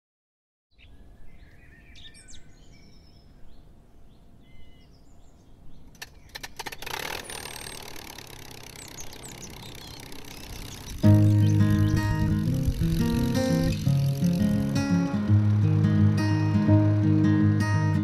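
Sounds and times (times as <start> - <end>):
birds chirping: 0.7 - 16.6
sharp clicks: 5.9 - 11.2.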